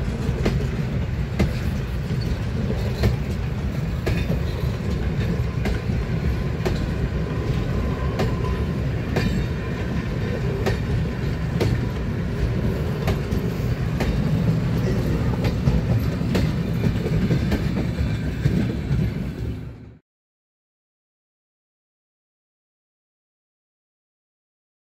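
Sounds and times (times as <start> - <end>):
wheels clicking over rail joints: 0.0 - 19.4
train coaches rumbling past: 0.0 - 20.0.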